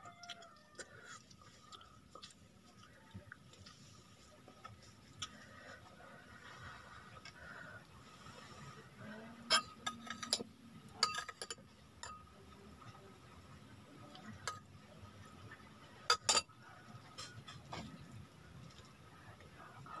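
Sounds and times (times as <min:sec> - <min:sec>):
metal spoon clinking ceramic bowl: 0:11.0 - 0:12.3, 0:16.1 - 0:16.5.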